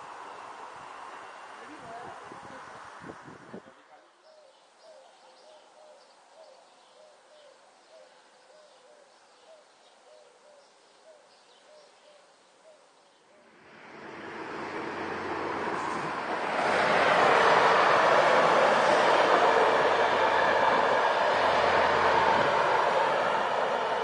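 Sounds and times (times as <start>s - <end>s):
approaching train: 0.0s - 3.7s, 13.4s - 24.0s.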